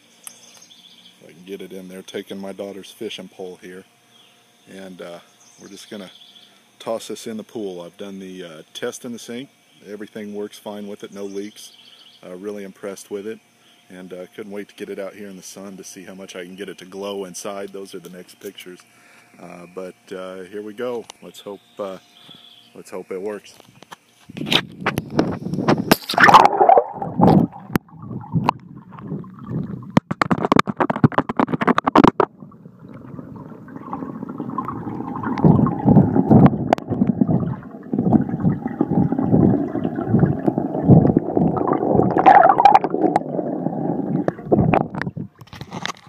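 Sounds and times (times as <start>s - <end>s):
muffled underwater gurgling: 25.6s - 45.4s.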